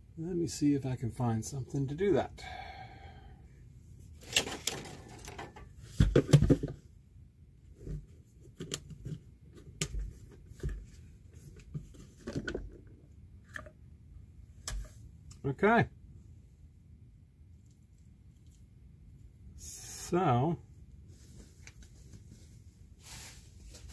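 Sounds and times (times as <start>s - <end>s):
plastic housing knocks and scrapes: 4.3s - 6.8s, 7.8s - 13.7s.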